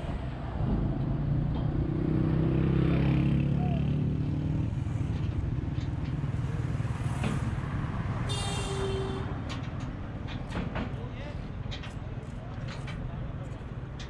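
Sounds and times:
engine droning: 0.0s - 10.6s.

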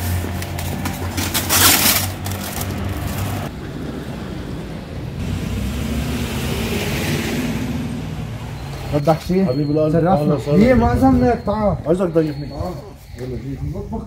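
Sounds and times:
low engine hum: 0.0s - 9.4s
plastic bag crinkling: 0.4s - 3.5s.

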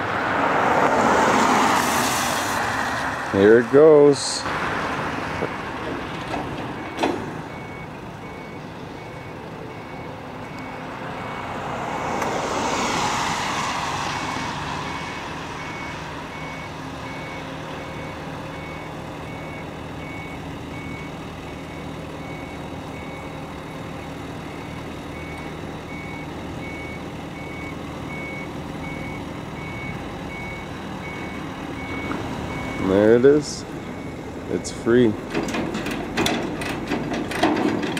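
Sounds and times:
vehicle passing: 0.0s - 8.5s, 9.2s - 17.4s.

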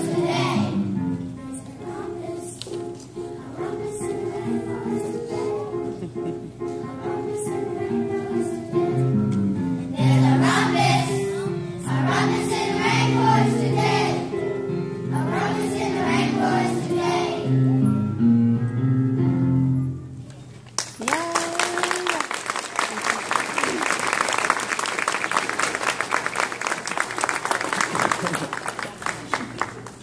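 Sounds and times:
children singing: 0.0s - 0.8s, 1.8s - 6.0s, 10.0s - 14.3s, 15.1s - 17.6s
instrumental accompaniment: 0.0s - 20.3s
audience applause: 20.8s - 30.0s
audience whooping: 21.0s - 24.2s.

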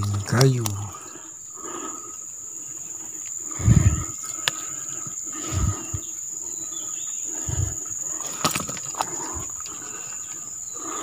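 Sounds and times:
high insect drone: 0.0s - 11.0s
dull low thumps: 3.6s - 4.1s.

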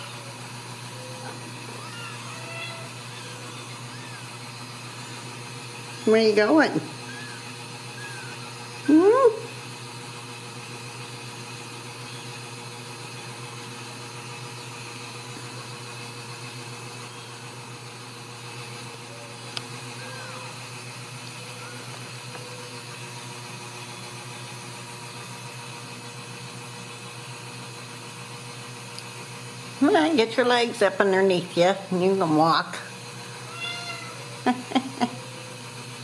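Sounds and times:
kittens mewing: 0.0s - 9.6s, 19.0s - 20.8s, 21.4s - 22.8s, 33.2s - 35.5s
steady mechanical hum: 0.0s - 36.0s.

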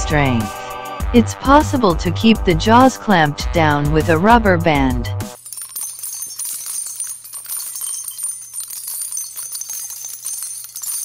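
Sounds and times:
bells jingling: 5.3s - 11.0s.

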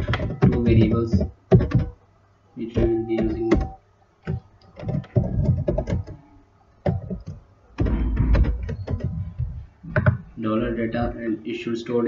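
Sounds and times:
keyboard keys clicking: 0.0s - 1.9s, 2.8s - 6.2s, 6.8s - 10.2s.

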